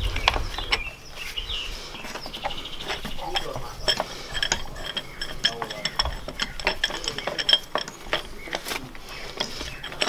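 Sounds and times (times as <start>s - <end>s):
light metal clinks: 2.2s - 10.0s.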